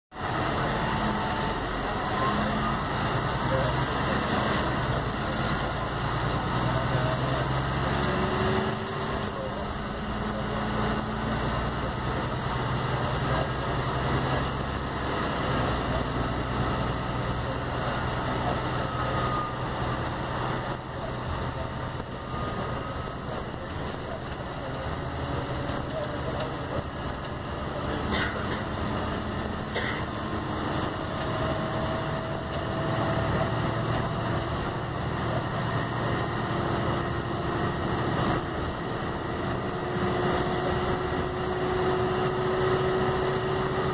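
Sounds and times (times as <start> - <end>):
bus diesel engine drone: 0.1 - 43.9
gearbox and drivetrain noise: 0.1 - 43.9.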